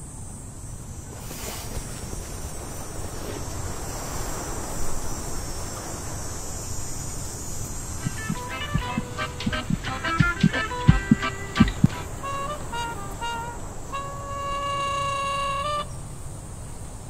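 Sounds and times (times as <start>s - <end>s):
insects chirping: 0.0s - 17.0s
wind rushing: 2.4s - 14.2s
plucked music notes: 8.1s - 15.8s.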